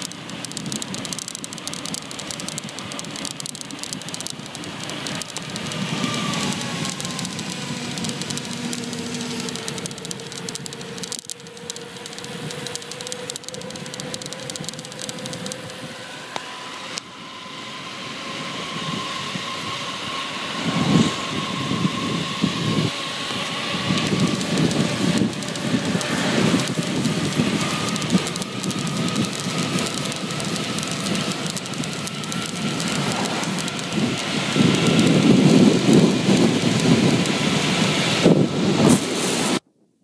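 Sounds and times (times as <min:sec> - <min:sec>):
wind rushing over microphone: 0:17.6 - 0:39.6.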